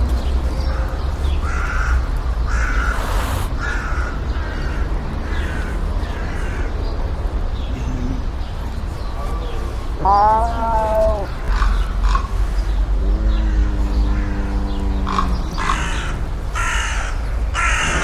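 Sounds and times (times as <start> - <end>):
harsh animal calls: 9.9 - 18.0.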